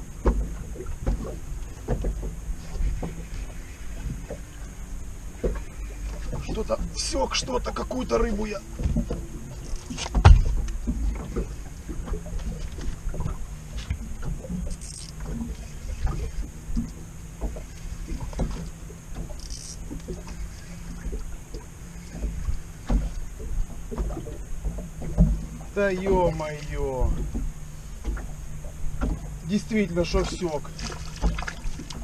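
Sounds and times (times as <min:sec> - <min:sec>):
knocks and clicks of fishing tackle: 0:00.2 - 0:03.2, 0:08.8 - 0:29.4, 0:30.1 - 0:32.0
fishing reel reeling in: 0:14.6 - 0:16.5, 0:19.4 - 0:21.2.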